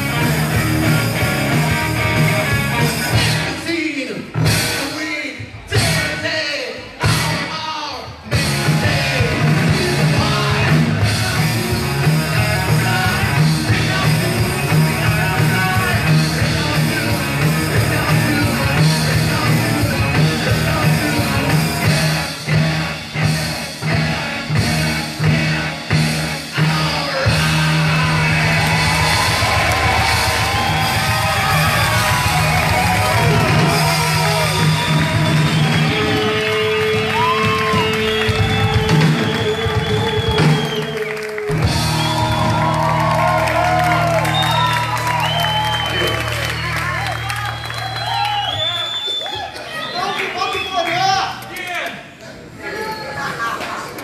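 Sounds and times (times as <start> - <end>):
drum kit: 0.0 - 3.7, 4.3 - 5.0, 5.6 - 6.2, 7.0 - 7.6, 8.2 - 48.7
electric guitar: 0.0 - 3.7, 8.2 - 48.6
bass guitar: 0.0 - 49.0
man singing: 3.4 - 29.1.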